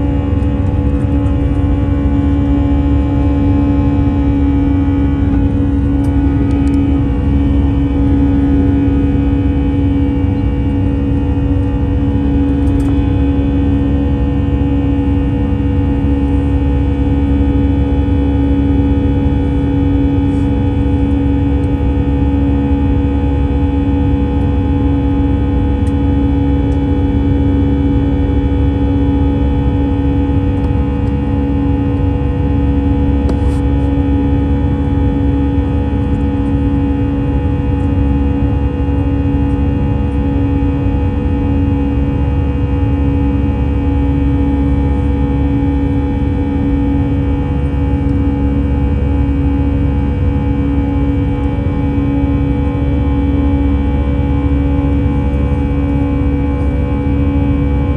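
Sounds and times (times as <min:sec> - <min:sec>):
airplane cabin roar: 0:00.0 - 0:57.9
constant hum tones: 0:00.0 - 0:57.9.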